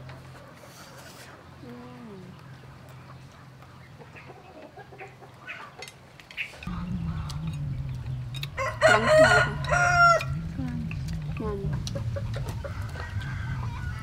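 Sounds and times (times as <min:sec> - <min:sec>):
chicken clucking: 0:02.5 - 0:14.0
steady low hum: 0:06.6 - 0:14.0
rooster crowing: 0:08.5 - 0:10.4, 0:12.4 - 0:14.0.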